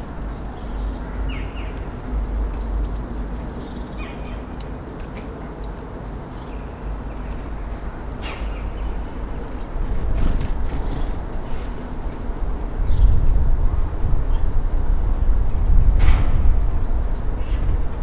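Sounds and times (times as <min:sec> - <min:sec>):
light ticks: 0:00.1 - 0:09.7.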